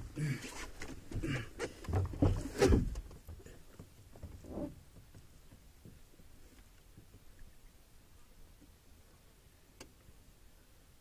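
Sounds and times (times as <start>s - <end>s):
water splashing against canoe: 0.4s - 7.7s.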